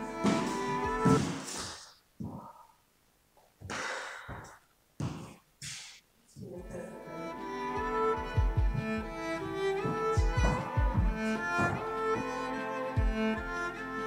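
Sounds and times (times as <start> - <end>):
string music: 0.0 - 1.6, 6.5 - 14.0
breathy exhales: 3.7 - 4.6, 5.6 - 6.1
low thumps: 8.1 - 13.6.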